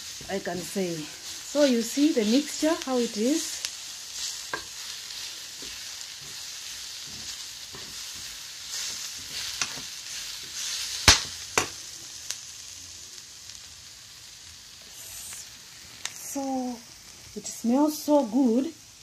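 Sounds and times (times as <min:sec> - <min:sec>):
vegetables sizzling in a pan: 0:00.0 - 0:19.0
metal spoon scraping a pan: 0:07.0 - 0:11.8.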